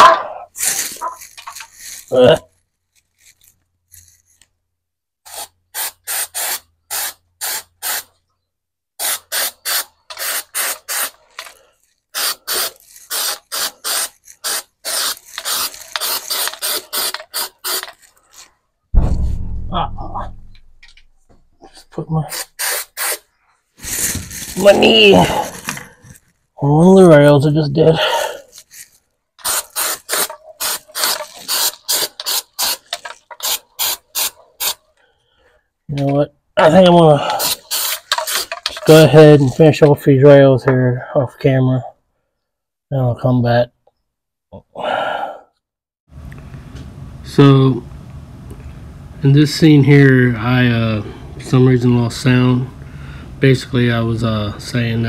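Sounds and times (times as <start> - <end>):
aerosol can spraying squirts: 5.3 - 8.1, 9.0 - 11.2, 12.2 - 18.0, 22.3 - 24.4, 29.4 - 34.8, 37.4 - 38.9.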